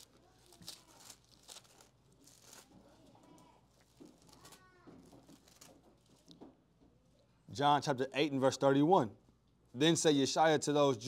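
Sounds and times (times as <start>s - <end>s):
faint background voice: 2.5s - 5.4s.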